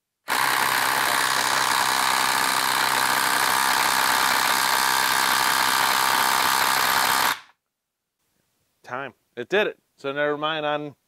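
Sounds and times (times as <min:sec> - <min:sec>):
impact driver hammering: 0:00.3 - 0:07.5.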